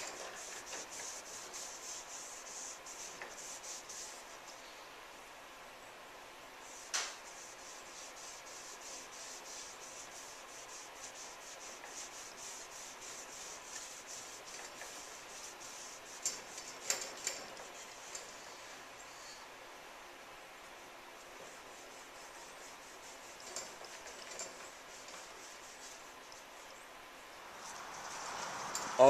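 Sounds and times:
cloth rag rubbing wood: 0:00.0 - 0:04.5, 0:06.6 - 0:18.6, 0:21.2 - 0:26.7
sharp tap: 0:06.9 - 0:07.2.

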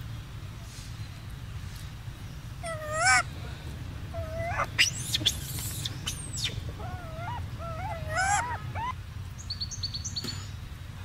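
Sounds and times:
monkey squeaks and cries: 0:02.6 - 0:03.2, 0:04.2 - 0:09.0.

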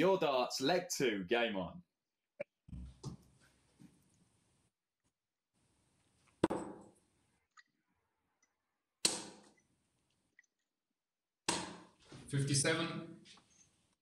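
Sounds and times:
darts thudding into dartboard: 0:09.1 - 0:09.5, 0:11.5 - 0:12.0.

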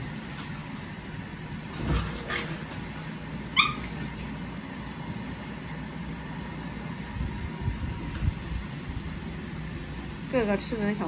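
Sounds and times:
high-pitched puppy yelp: 0:03.5 - 0:04.1
puppy yips: 0:03.5 - 0:04.1.

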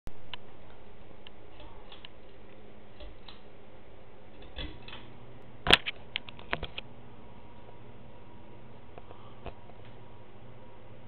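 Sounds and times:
fan motor humming: 0:00.1 - 0:11.0.

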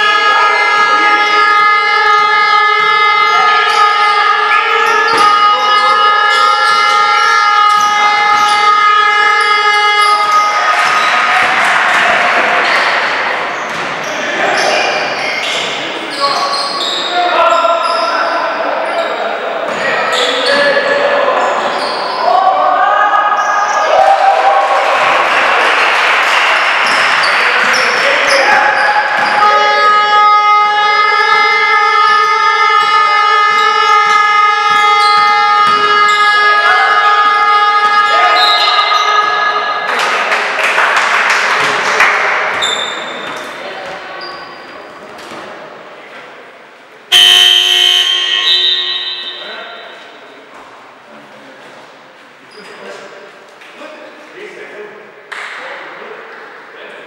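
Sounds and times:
court noise: 0:00.0 - 0:57.0
sneakers squeaking on hardwood: 0:03.2 - 0:18.3, 0:26.8 - 0:30.0, 0:32.1 - 0:36.6, 0:42.5 - 0:45.6
loud sustained horn blast: 0:29.4 - 0:38.2, 0:47.1 - 0:49.6
basketball bouncing: 0:34.6 - 0:36.1.

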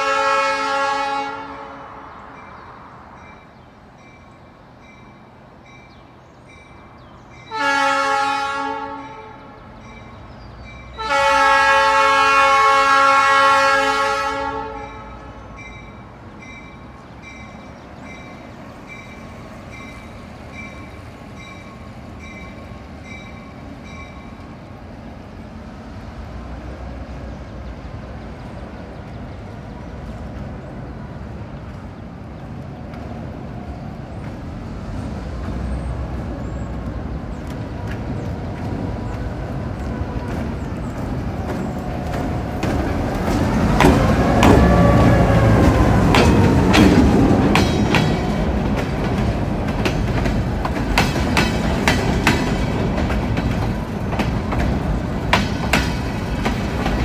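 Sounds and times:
locomotive horn chord: 0:00.0 - 0:02.4, 0:07.5 - 0:09.6, 0:10.9 - 0:15.6.

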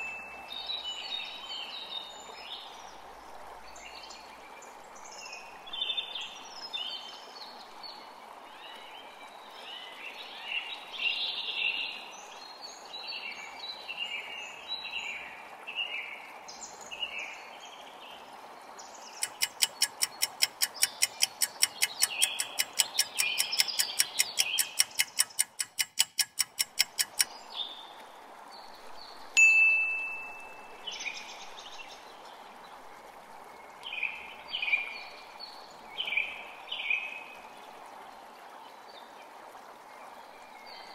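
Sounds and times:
rushing water: 0:00.0 - 0:40.9
birds singing: 0:19.0 - 0:27.8
rapid ticking: 0:19.2 - 0:27.3
bright chime: 0:29.4 - 0:30.8.

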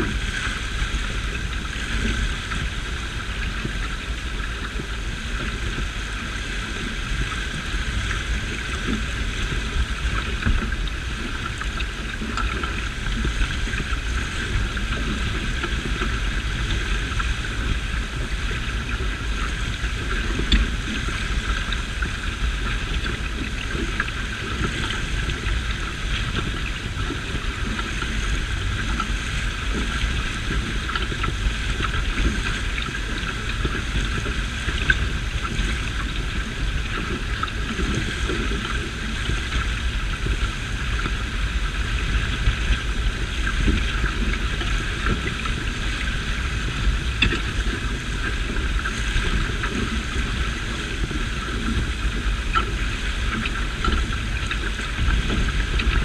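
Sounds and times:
water rushing along hull: 0:00.0 - 0:56.0
wind buffeting microphone: 0:00.0 - 0:56.0.

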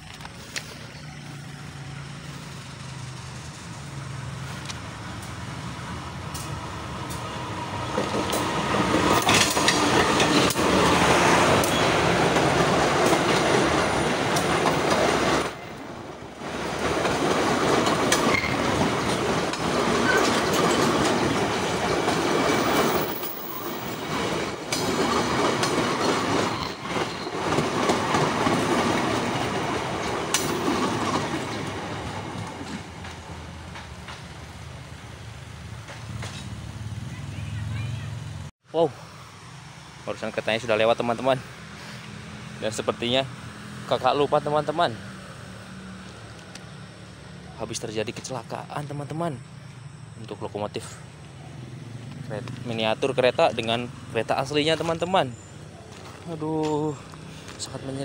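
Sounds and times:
train wheels on rails: 0:00.0 - 0:37.1.

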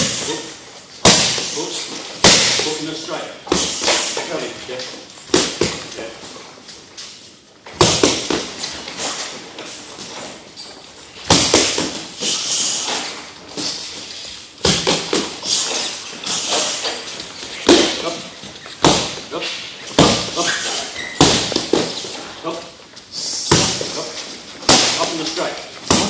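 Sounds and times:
boxing gloves slapping pads: 0:01.0 - 0:01.5, 0:02.2 - 0:02.8, 0:07.7 - 0:08.5, 0:11.2 - 0:12.2, 0:14.6 - 0:15.5, 0:17.5 - 0:18.0, 0:18.8 - 0:19.2, 0:19.9 - 0:20.4, 0:21.2 - 0:22.0, 0:23.5 - 0:24.0, 0:24.6 - 0:25.2, 0:25.8 - 0:26.0.

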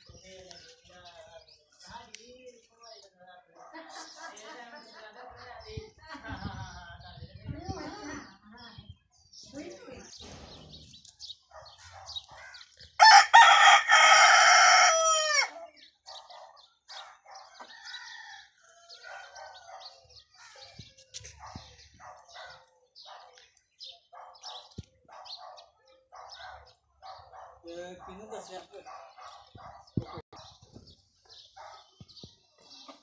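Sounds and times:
rooster crowing: 0:13.0 - 0:15.6.

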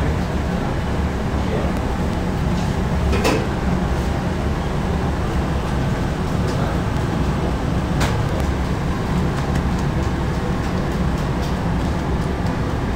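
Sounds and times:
bakery machinery rumble: 0:00.0 - 0:12.9.

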